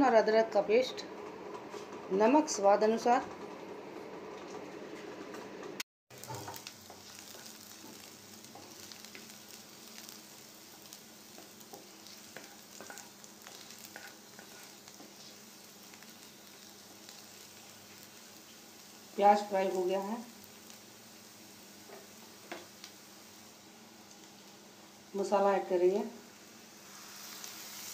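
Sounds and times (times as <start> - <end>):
onions sizzling in a pan: 6.1 - 27.9
spatula scraping a pan: 11.4 - 15.4.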